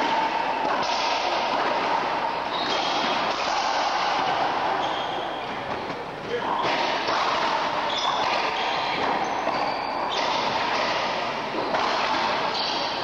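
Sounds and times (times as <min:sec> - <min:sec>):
racquet striking ball: 0:00.0 - 0:13.0.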